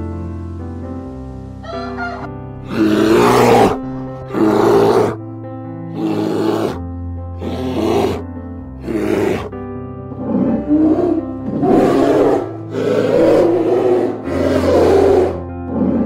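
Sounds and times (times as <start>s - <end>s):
background music: 0.0s - 16.0s
animal harsh breathy calls: 1.7s - 5.2s, 5.9s - 6.8s, 7.4s - 8.2s, 8.8s - 9.5s, 10.2s - 16.0s.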